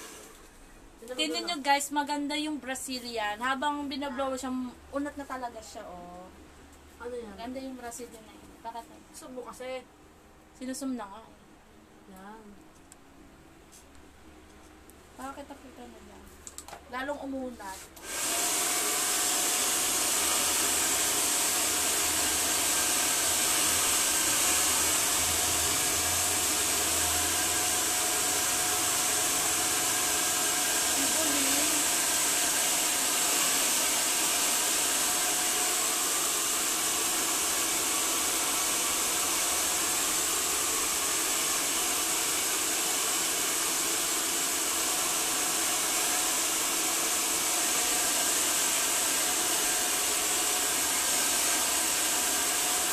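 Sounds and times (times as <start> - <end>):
hair dryer running: 0.0 - 0.5, 17.7 - 52.9.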